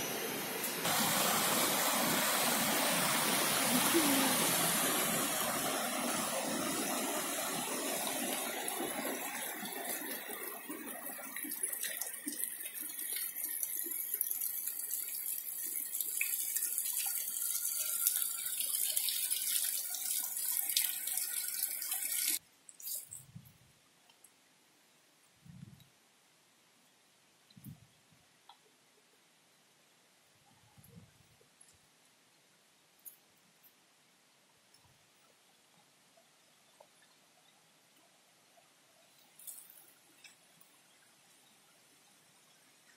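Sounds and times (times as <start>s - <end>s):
stream rushing over rocks: 0.0s - 13.4s.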